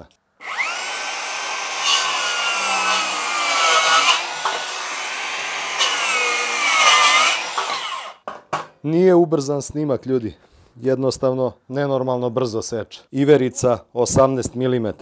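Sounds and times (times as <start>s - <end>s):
circular saw whining: 0.4s - 8.2s
saw cutting through board: 0.4s - 8.2s.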